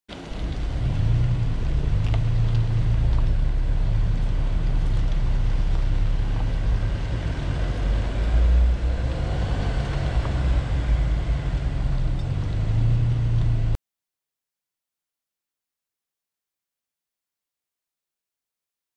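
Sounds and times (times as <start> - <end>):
vehicle driving on gravel: 0.1 - 13.8.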